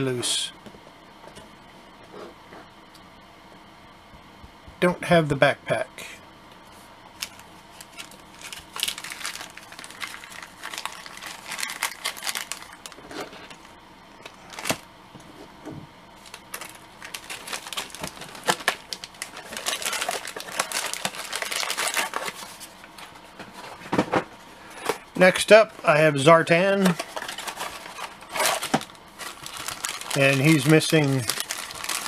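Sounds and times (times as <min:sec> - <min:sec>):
plastic bag crinkling: 0:07.2 - 0:14.8, 0:16.2 - 0:22.8, 0:26.9 - 0:32.0.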